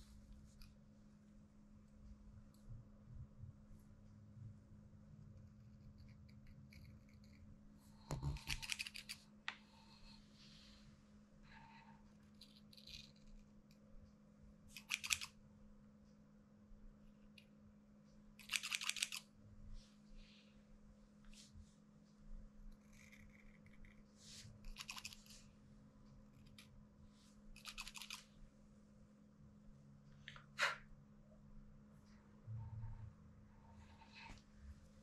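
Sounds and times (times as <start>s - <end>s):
faint low hum: 0.0s - 35.0s
scissors snipping fur: 8.1s - 9.2s, 14.7s - 15.3s, 18.4s - 19.2s, 27.6s - 28.2s.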